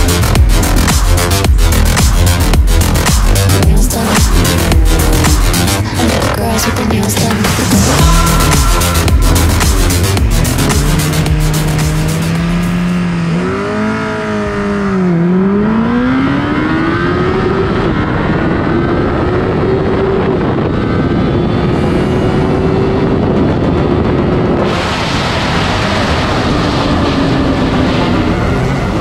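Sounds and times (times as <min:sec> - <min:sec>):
motorcycle engine revving: 0:00.0 - 0:29.0
wind rush on microphone: 0:16.1 - 0:29.0.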